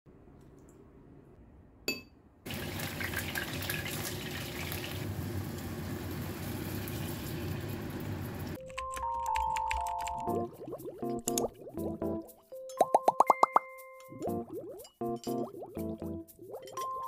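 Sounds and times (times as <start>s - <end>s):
chicken wings sizzling in oil: 2.5s - 8.6s.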